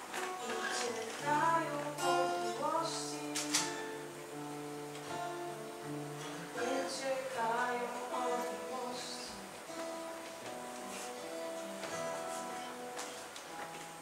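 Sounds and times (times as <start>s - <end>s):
acoustic guitar: 0.0s - 14.0s
person singing: 0.1s - 10.3s.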